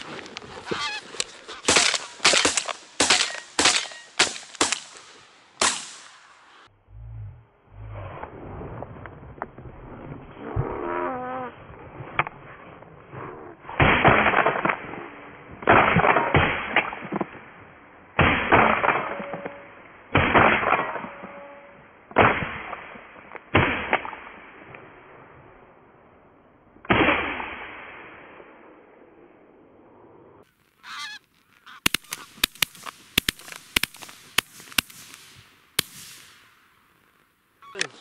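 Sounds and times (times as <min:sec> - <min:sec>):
shotgun shots echoing: 0:01.6 - 0:06.2, 0:31.8 - 0:36.4.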